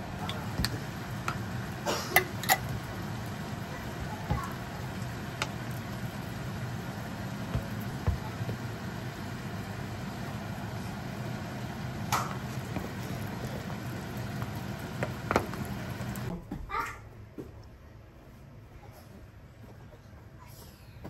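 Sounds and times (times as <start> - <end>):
steady low hum: 0.0 - 16.3.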